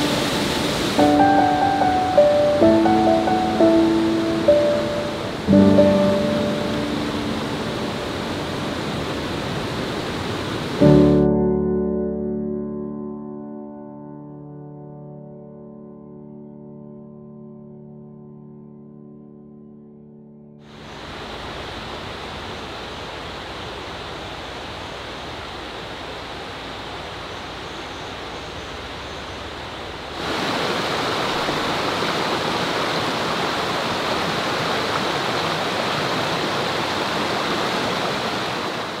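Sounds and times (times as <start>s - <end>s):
stream rushing over rocks: 0.0s - 11.2s, 20.6s - 39.0s.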